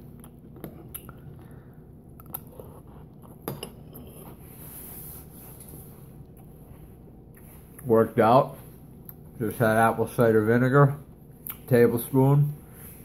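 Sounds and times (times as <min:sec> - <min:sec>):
person chewing: 0:00.0 - 0:04.5.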